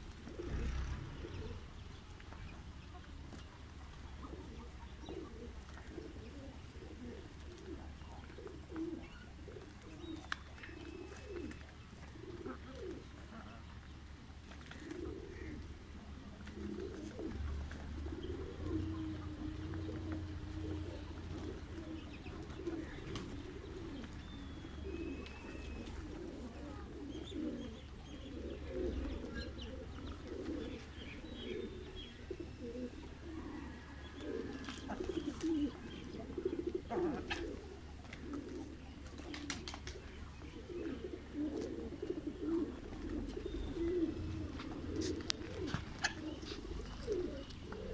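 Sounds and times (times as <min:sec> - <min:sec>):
pigeons cooing: 0:00.0 - 0:47.9.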